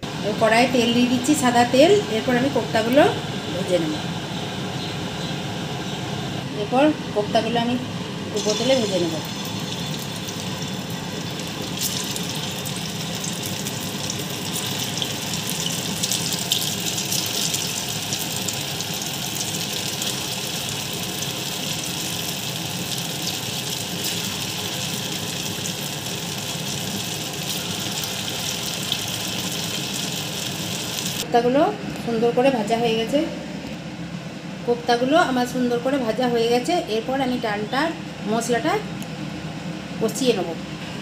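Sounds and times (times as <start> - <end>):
deep-frying sizzle with crackles: 8.3 - 31.3.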